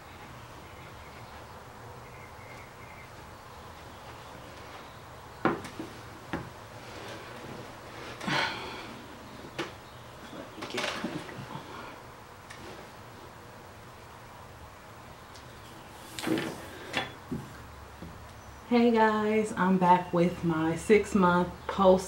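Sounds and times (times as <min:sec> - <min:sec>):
rustling: 0:03.7 - 0:13.3
wooden knocks: 0:05.4 - 0:06.6.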